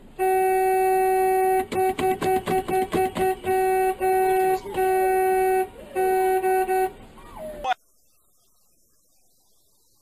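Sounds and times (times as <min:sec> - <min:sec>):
car horn honking: 0:00.1 - 0:07.0.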